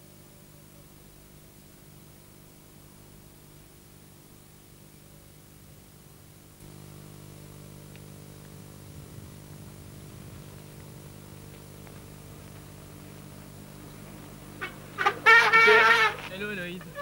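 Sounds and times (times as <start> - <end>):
background hiss: 0.0 - 17.0
low hum: 6.4 - 17.0.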